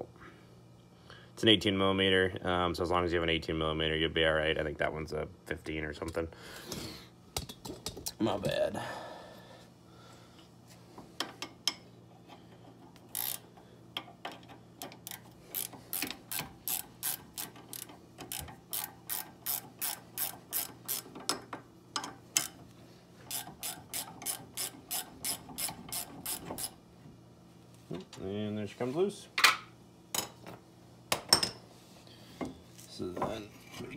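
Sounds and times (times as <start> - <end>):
hand ratchet clicking: 13.0 - 13.5, 14.8 - 21.3, 22.3 - 22.6, 23.3 - 26.8.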